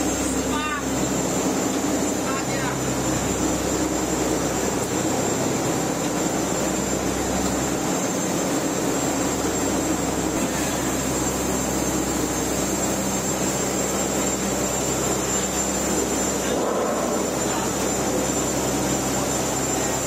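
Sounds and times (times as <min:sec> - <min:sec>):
boat engine droning: 0:00.0 - 0:20.0
thin high whine: 0:00.0 - 0:20.0.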